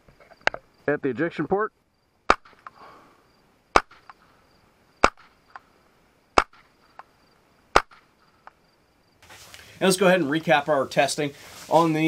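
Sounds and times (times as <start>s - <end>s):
suppressed gunshots: 2.3s - 2.8s, 3.7s - 4.2s, 5.0s - 5.7s, 6.3s - 7.1s, 7.7s - 8.1s.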